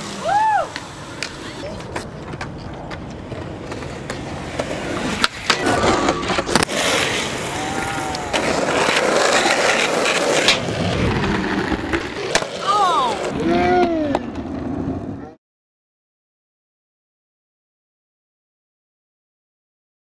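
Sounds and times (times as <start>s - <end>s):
skateboard wheels on concrete: 0.0s - 15.4s
skateboard clacks: 0.7s - 14.7s.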